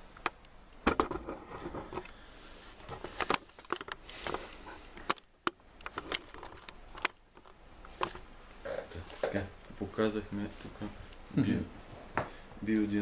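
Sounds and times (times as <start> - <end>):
phone handling clicks and rustles: 0.1 - 2.2, 2.8 - 8.3.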